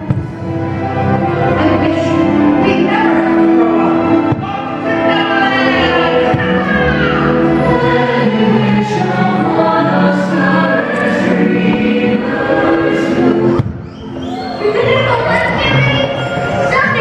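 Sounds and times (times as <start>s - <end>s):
choir singing: 0.0s - 16.8s
orchestral music: 0.0s - 17.0s.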